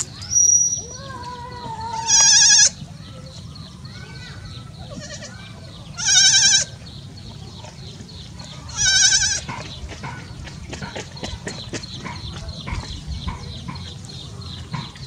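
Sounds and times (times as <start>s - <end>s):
goat kid bleating: 1.6s - 2.8s, 4.8s - 6.8s, 8.7s - 9.5s.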